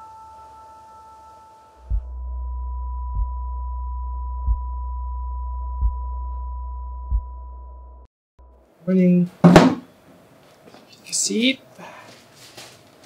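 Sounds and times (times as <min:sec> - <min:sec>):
high ringing tone: 0:00.0 - 0:08.7
deep low hum: 0:01.7 - 0:08.7
dull low thump: 0:01.9 - 0:02.2, 0:03.0 - 0:03.5, 0:04.4 - 0:04.8, 0:05.7 - 0:06.4, 0:07.0 - 0:07.4.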